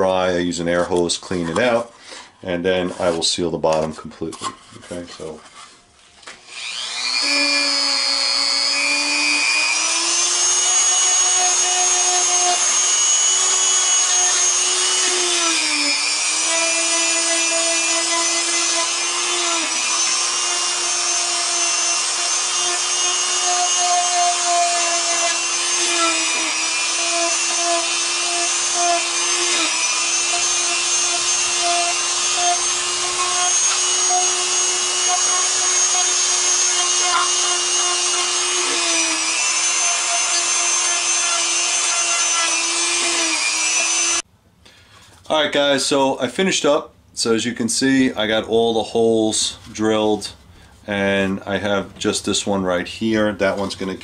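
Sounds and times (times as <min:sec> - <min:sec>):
rotary tool whining: 0:06.3 - 0:44.2.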